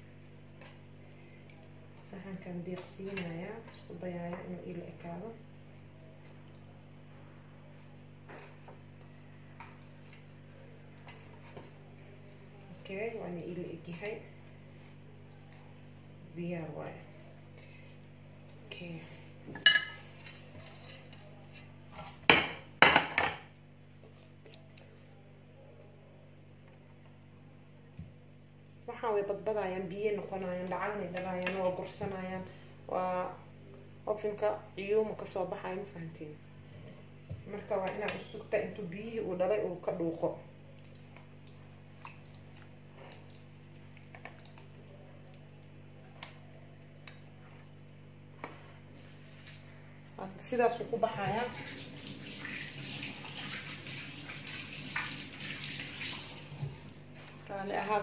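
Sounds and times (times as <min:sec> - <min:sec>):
steady low hum: 0:00.0 - 0:58.0
wet squishes of marinade: 0:00.2 - 0:16.0, 0:23.9 - 0:25.3, 0:40.6 - 0:50.6
spoon clattering and scraping dishes: 0:19.5 - 0:21.2.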